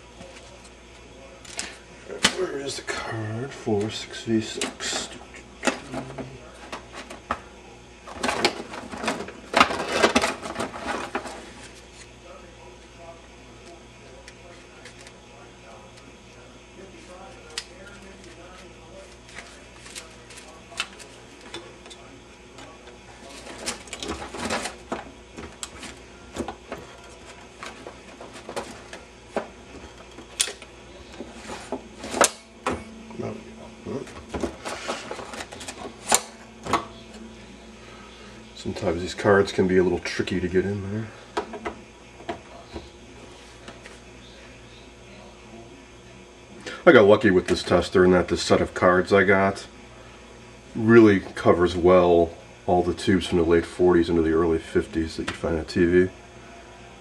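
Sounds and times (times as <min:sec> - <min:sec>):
paper cards rustling and shuffling: 0:17.4 - 0:21.5
paper card scraping rustles: 0:34.5 - 0:36.2.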